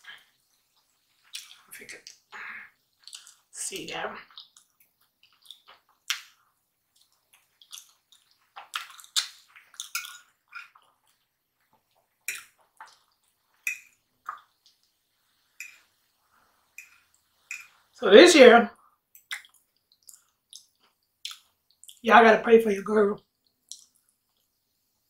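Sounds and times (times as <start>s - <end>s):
wet chewing and mouth smacks: 0.1s - 3.5s, 4.2s - 15.0s, 19.1s - 22.0s, 23.2s - 24.8s.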